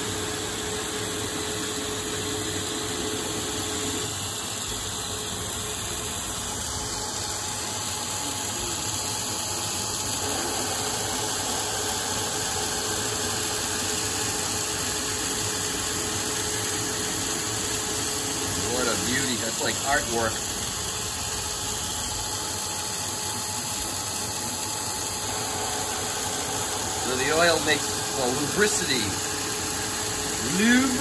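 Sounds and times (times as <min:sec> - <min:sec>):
lathe cutting steel: 0:09.7 - 0:22.0, 0:23.6 - 0:31.0
coolant spray hiss: 0:27.0 - 0:29.1.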